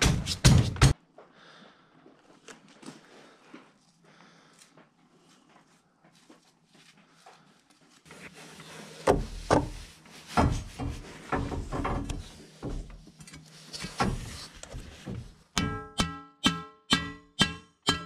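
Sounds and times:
metal rebar scraping and knocking: 9.0s - 18.0s.

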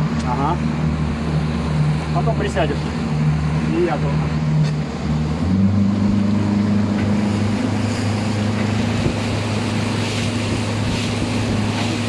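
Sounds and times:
outboard motor humming: 0.0s - 12.0s
water noise: 0.0s - 12.0s
wind: 0.0s - 12.0s.

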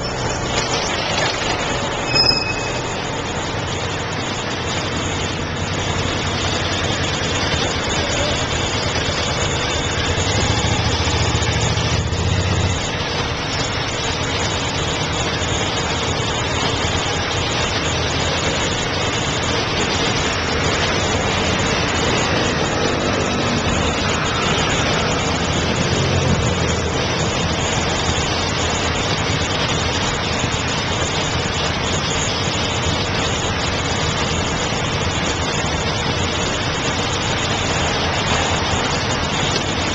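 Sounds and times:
deeper engine rumble: 0.0s - 29.4s
city traffic rumble: 0.0s - 39.9s
motorcycle engines idling: 0.0s - 39.9s.

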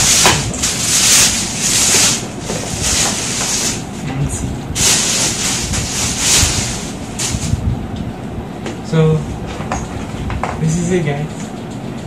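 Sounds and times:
plastic bag crinkling: 0.0s - 3.9s, 4.8s - 7.5s.

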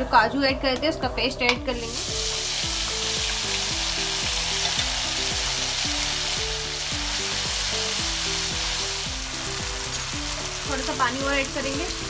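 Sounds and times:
low background music with beat: 0.0s - 12.0s
paste sizzling in hot oil: 1.8s - 12.0s
spatula stirring: 2.0s - 10.9s.

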